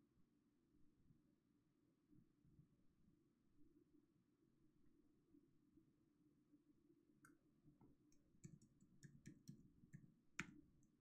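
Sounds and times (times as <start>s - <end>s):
computer mouse clicks: 8.1s - 11.0s.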